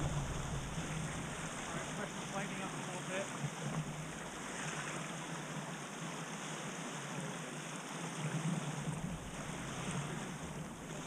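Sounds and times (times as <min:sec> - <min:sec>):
wind rushing: 0:00.0 - 0:01.6
water rushing past boat: 0:00.0 - 0:11.0.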